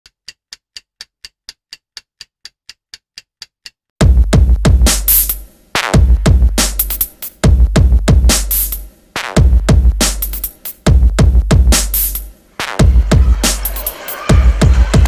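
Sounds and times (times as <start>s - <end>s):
faint ticking beat: 0.0s - 14.1s
deep bass: 4.0s - 13.6s
heavy drum machine hits: 4.0s - 15.0s.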